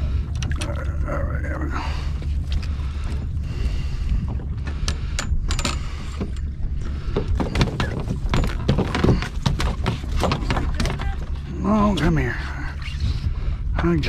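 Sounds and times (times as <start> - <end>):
boat engine low rumble: 0.0 - 14.0
knocks and clatter: 7.1 - 11.4.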